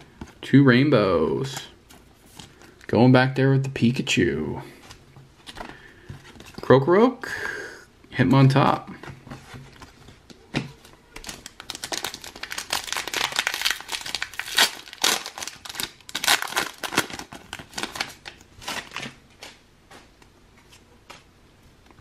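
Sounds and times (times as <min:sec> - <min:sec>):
foil wrapper crinkling and tearing: 0:10.8 - 0:19.2.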